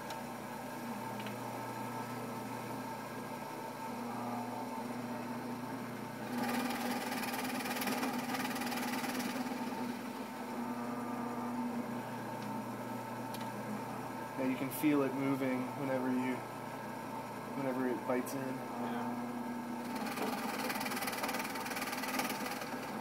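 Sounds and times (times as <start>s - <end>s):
drill press motor humming: 0.0s - 23.0s
drill bit boring into wood: 6.2s - 10.1s, 19.8s - 23.0s.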